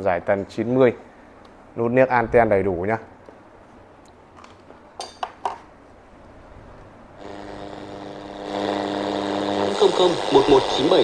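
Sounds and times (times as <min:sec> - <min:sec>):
radio hiss and hum: 0:07.2 - 0:11.0.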